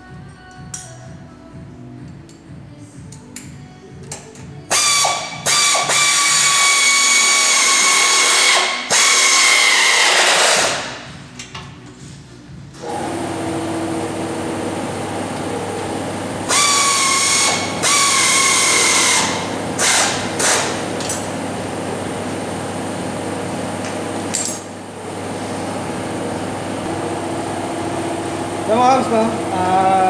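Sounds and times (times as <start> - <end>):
pneumatic tool whining: 4.7 - 11.0, 16.4 - 21.2
steady hum: 18.5 - 30.0.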